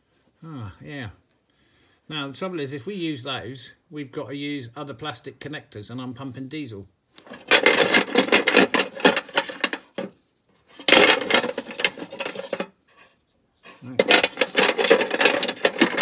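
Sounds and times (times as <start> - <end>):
plumbing fittings clattering: 7.3 - 10.1, 10.8 - 12.7, 14.0 - 16.0.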